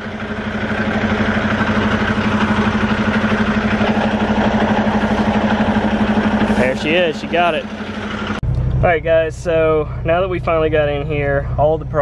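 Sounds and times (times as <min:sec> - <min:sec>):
truck diesel engine running: 0:00.0 - 0:12.0.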